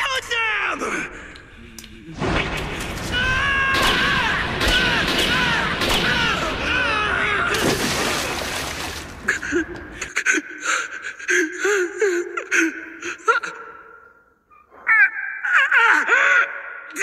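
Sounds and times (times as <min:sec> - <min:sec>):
man screaming: 0:03.1 - 0:07.9.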